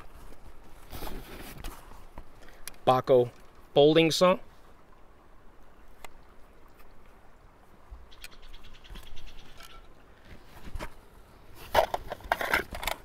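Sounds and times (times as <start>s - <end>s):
canvas rustling: 0.0s - 2.1s
light ticks: 2.4s - 2.8s.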